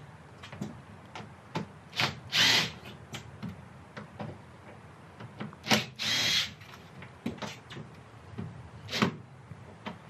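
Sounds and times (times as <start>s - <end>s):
handling clicks and knocks: 0.4s - 1.8s
cordless drill running: 2.0s - 2.8s, 5.7s - 6.6s.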